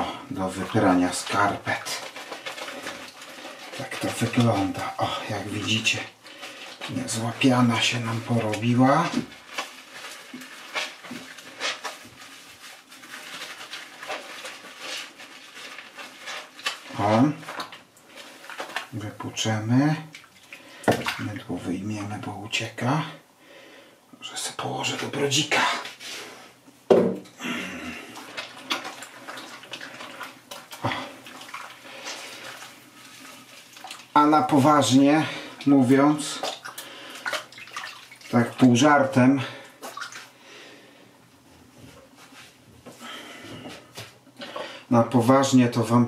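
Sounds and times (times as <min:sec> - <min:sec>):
water sloshing and squelching: 0:00.4 - 0:21.6, 0:28.0 - 0:40.4
wet sock squishing: 0:00.6 - 0:19.0, 0:28.1 - 0:38.7, 0:39.6 - 0:40.4.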